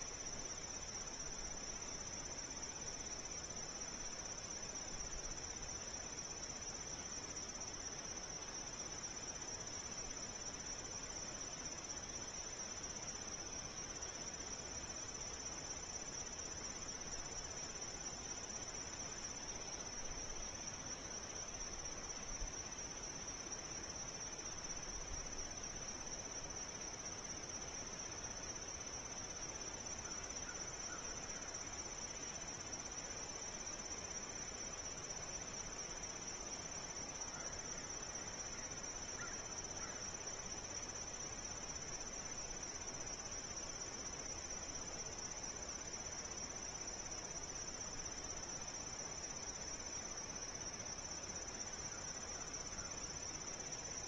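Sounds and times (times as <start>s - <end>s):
insect chorus trilling: 0.0s - 54.0s.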